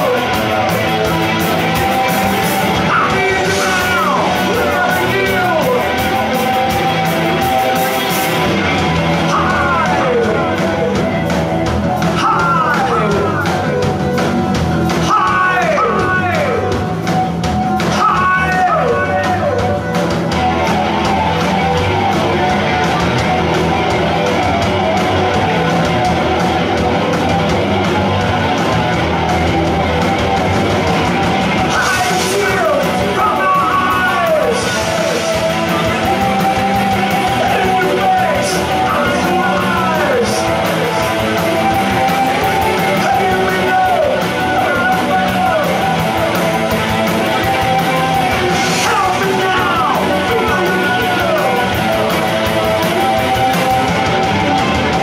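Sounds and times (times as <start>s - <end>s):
person singing: 0.0s - 8.0s, 9.0s - 14.0s, 14.9s - 16.9s, 17.8s - 20.0s, 31.5s - 55.0s
drums: 0.0s - 55.0s
electric guitars: 0.0s - 55.0s.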